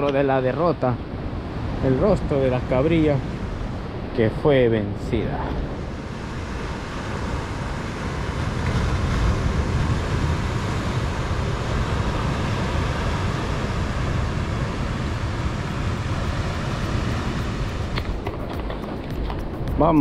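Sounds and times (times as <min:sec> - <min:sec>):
ocean surf: 0:00.0 - 0:20.0
wind rumbling on microphone: 0:00.0 - 0:20.0.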